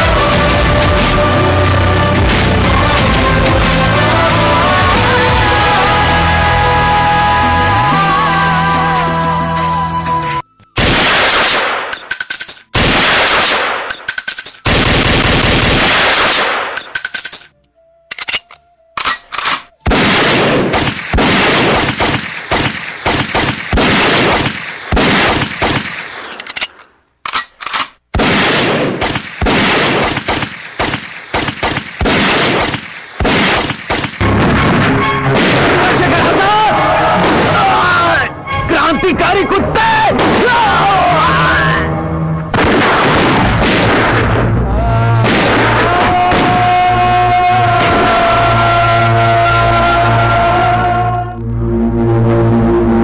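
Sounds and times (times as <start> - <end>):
music track: 0.0 - 11.8, 17.0 - 20.6, 34.2 - 42.6
machine-gun fire sound effects: 10.8 - 12.0, 12.8 - 13.9, 14.6 - 16.8, 19.9 - 26.3, 28.2 - 36.0, 42.5 - 44.5, 45.2 - 46.7.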